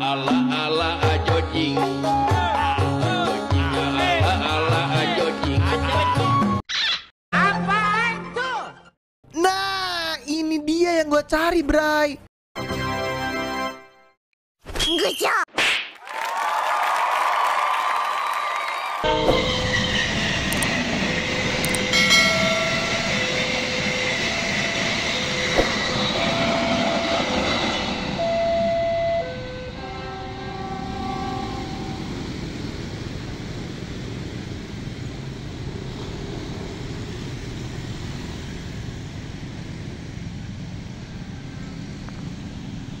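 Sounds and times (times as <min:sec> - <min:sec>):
passenger train rumbling past: 0:19.0 - 0:43.0
quiet rail rumble: 0:19.1 - 0:43.0.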